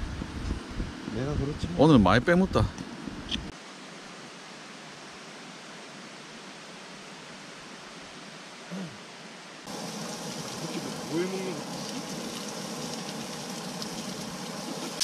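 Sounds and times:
creek water flowing: 0:09.4 - 0:15.0.

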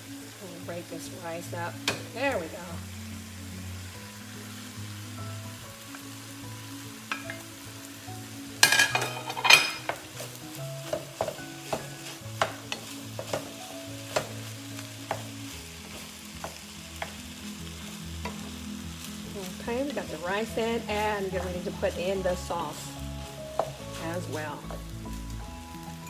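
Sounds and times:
food sizzling in a wok: 0:00.0 - 0:26.0
spatula scraping and knocking pan: 0:08.6 - 0:17.2, 0:23.5 - 0:24.9.

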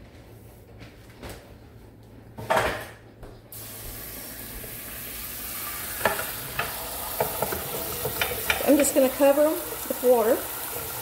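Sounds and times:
tap water spraying into saucepan: 0:03.5 - 0:11.0.

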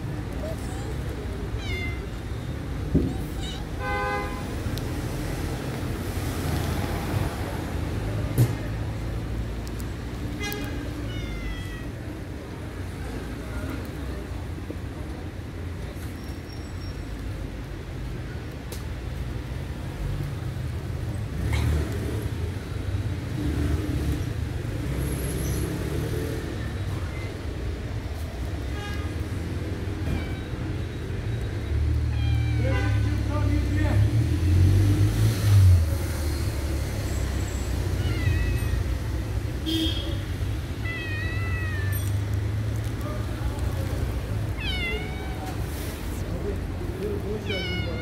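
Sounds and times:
road traffic rumble: 0:00.0 - 0:48.0
cat meowing: 0:01.5 - 0:02.2, 0:03.1 - 0:03.8, 0:10.9 - 0:12.0, 0:32.0 - 0:33.1, 0:37.8 - 0:39.2, 0:40.6 - 0:42.4, 0:44.4 - 0:46.3, 0:47.2 - 0:48.0.

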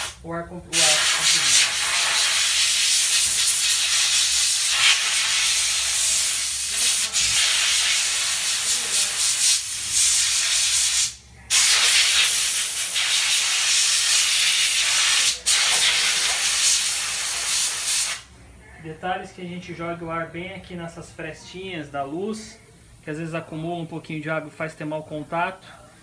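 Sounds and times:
air blow gun hissing: 0:00.8 - 0:18.3.

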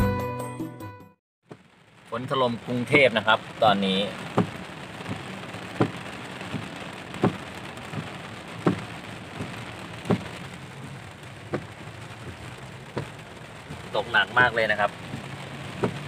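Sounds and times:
heavy rain on car windshield: 0:01.4 - 0:16.0
windshield wipers knocking: 0:04.2 - 0:16.0.

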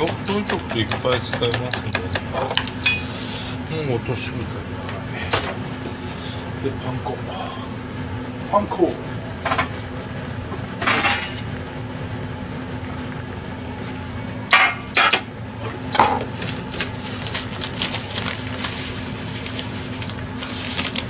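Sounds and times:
steady low hum: 0:00.0 - 0:21.0
metal kitchenware clattering: 0:10.8 - 0:11.4.

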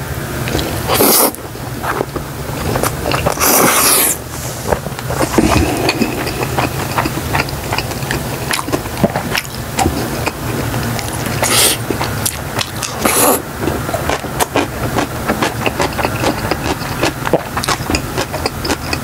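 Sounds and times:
slurping noodles: 0:00.6 - 0:14.8
chewing with wet mouth clicks: 0:05.0 - 0:19.0.

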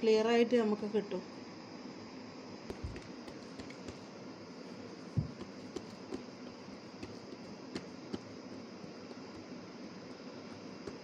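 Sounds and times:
background hiss: 0:00.0 - 0:11.0
hand patting dough: 0:02.6 - 0:11.0.

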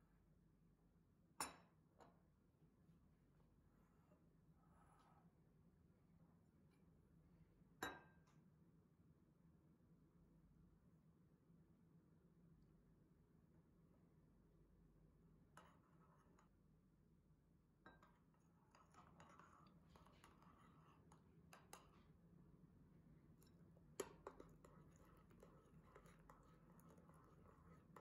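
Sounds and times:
metal spoon stirring powder in bowl: 0:15.5 - 0:16.6, 0:17.8 - 0:22.2, 0:23.2 - 0:28.0.

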